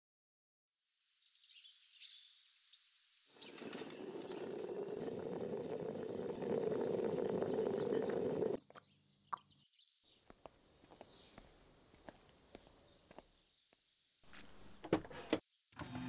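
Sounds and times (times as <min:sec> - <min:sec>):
faint bird chirps: 0:01.1 - 0:05.5
moka pot gurgling and sputtering: 0:03.4 - 0:08.6.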